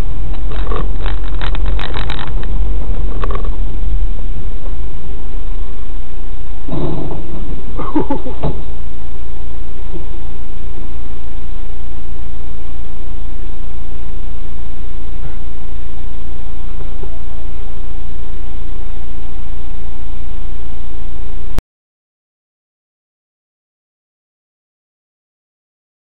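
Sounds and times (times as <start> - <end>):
car engine idling: 0.0 - 20.0.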